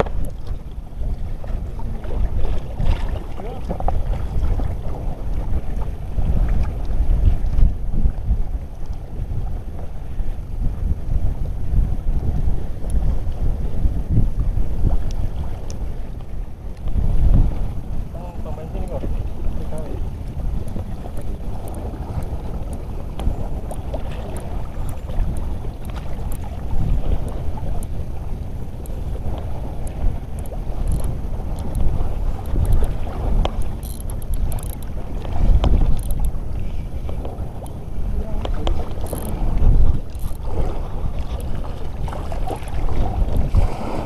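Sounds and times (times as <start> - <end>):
water sloshing: 0.0 - 6.8, 18.5 - 44.0
wind buffeting microphone: 0.0 - 44.0
faint ticks: 8.8 - 9.0, 15.0 - 15.8, 28.8 - 31.8, 32.4 - 34.9, 35.6 - 36.4, 38.4 - 39.4, 40.1 - 40.4.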